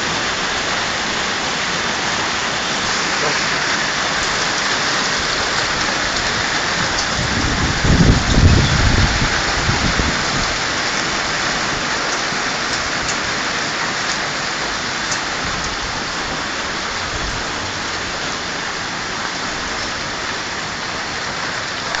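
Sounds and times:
hail and rain pelting: 0.0s - 22.0s
low thunder rumble: 5.7s - 11.2s.

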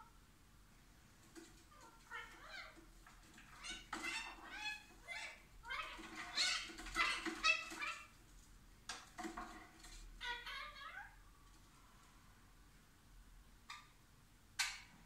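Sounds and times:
parakeet chattering: 1.5s - 8.2s, 10.2s - 11.2s.

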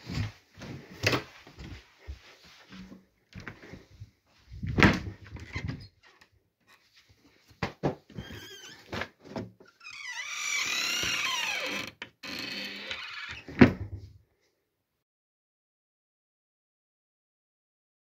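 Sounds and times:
wardrobe door creaking: 4.8s - 6.2s, 8.1s - 14.0s.

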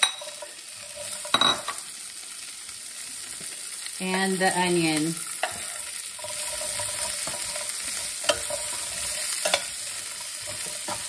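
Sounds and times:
spatula scraping a pan: 0.0s - 1.8s, 5.3s - 11.0s
vegetables sizzling in hot oil: 0.0s - 11.0s.

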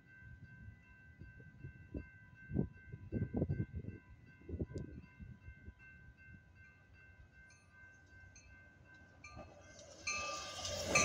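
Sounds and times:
crossing warning bell ringing: 0.0s - 11.0s
train wheels rushing on rails: 8.8s - 11.0s.

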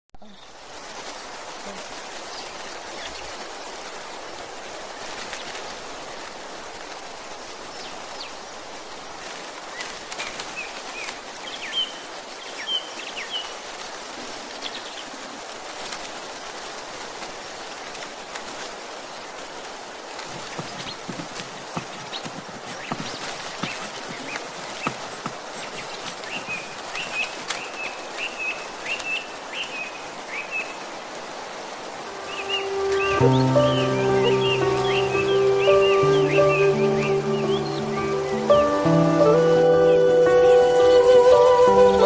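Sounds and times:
rushing outdoor background noise: 0.3s - 42.0s
high bird chirps: 32.2s - 42.0s.

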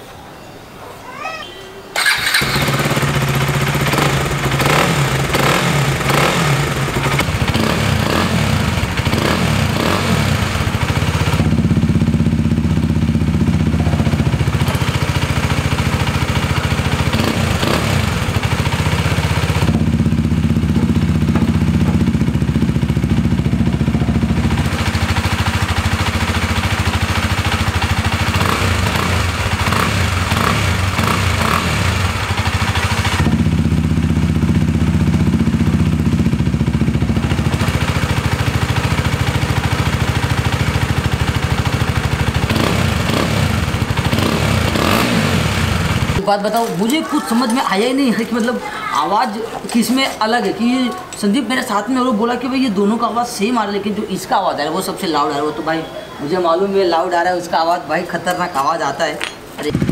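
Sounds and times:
loud motorcycle engine revving: 2.0s - 46.2s, 59.6s - 59.9s.

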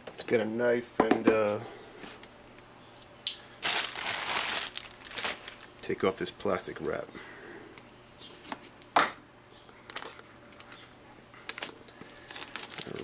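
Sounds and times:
plastic wrap rustling: 3.6s - 5.9s, 11.4s - 13.0s.

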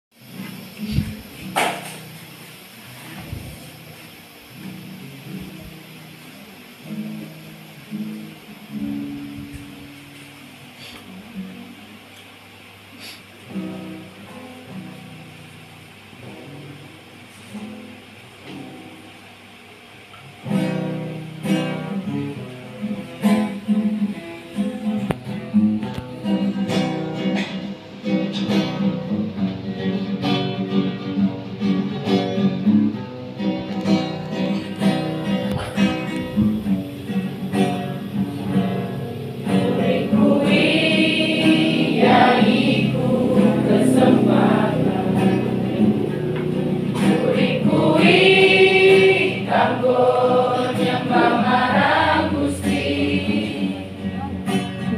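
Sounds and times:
plucked-string accompaniment: 20.5s - 54.9s
choir singing a hymn: 37.9s - 54.3s.

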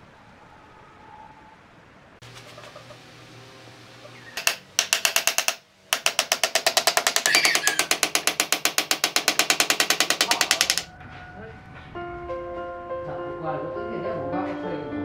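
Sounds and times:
hammer driving nails: 4.4s - 10.9s.

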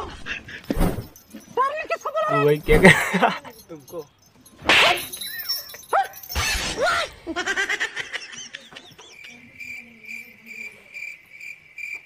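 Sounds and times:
crickets chirping: 7.9s - 12.0s.

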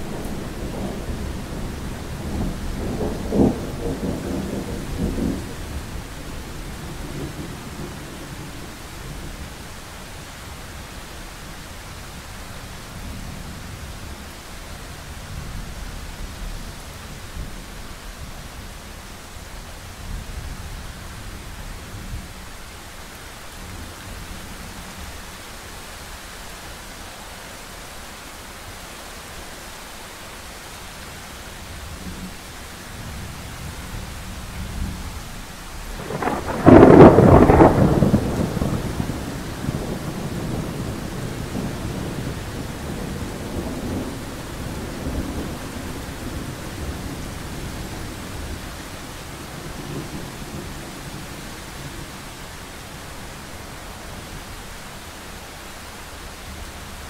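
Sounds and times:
thunder rumbling: 0.0s - 9.4s, 35.8s - 52.4s
steady rain: 0.0s - 57.0s.

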